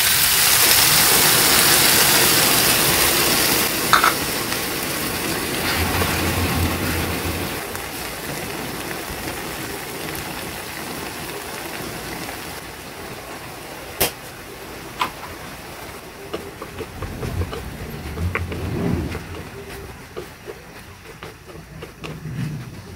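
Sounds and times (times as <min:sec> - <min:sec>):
vegetables sizzling in a pan: 0:00.0 - 0:22.9
wooden spatula stirring: 0:16.0 - 0:22.9.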